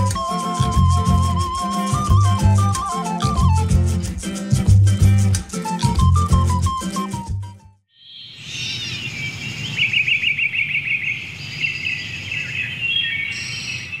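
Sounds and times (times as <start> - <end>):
music: 0.0 - 7.8
birds chirping and trilling: 7.9 - 14.0.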